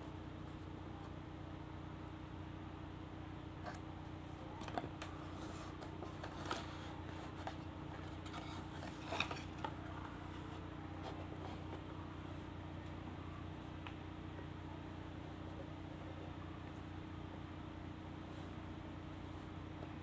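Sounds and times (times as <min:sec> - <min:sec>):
steady low hum: 0:00.0 - 0:20.0
cardboard and plastic rustling: 0:04.6 - 0:11.9.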